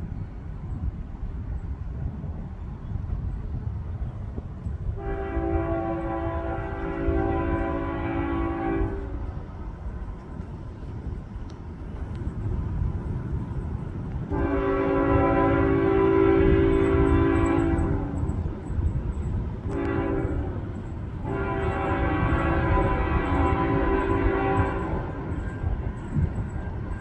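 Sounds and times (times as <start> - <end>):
train rumbling: 0.0 - 27.0
locomotive air horn blasts: 4.9 - 9.4, 14.3 - 18.3, 19.6 - 25.6.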